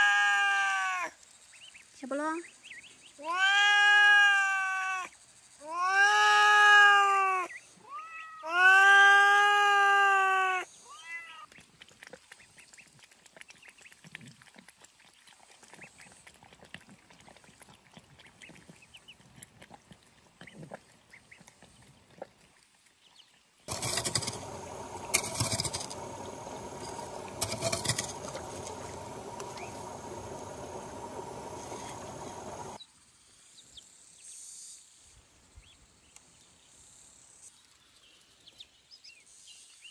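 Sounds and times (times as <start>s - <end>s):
cat meowing loudly: 0.0s - 1.1s, 3.2s - 11.5s
ducklings in shallow water: 0.0s - 34.4s, 35.0s - 36.6s
cats lapping from a bowl: 11.5s - 23.0s
steady outdoor noise: 23.6s - 38.5s.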